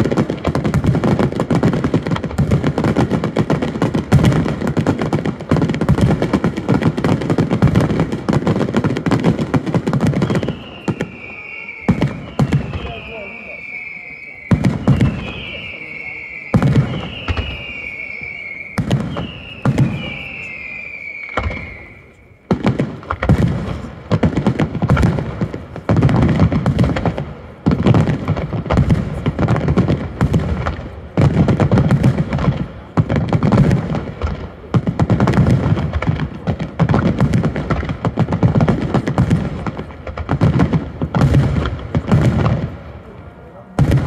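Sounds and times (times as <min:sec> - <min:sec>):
firework shell bursts and crackling: 0:00.0 - 0:43.1, 0:43.7 - 0:44.0
falling firework whistle: 0:09.8 - 0:23.9.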